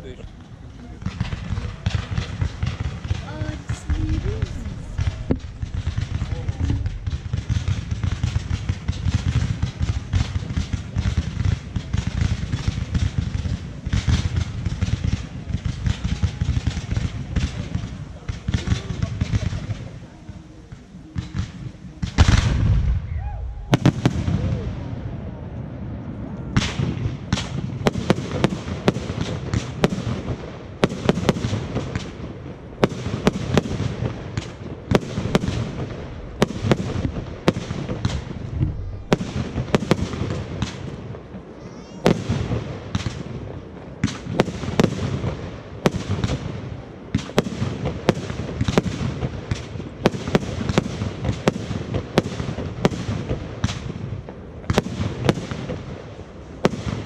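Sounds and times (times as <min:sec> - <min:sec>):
continuous low rumble: 0:00.0 - 0:27.9, 0:31.6 - 0:41.9
fireworks bangs: 0:00.0 - 0:57.0.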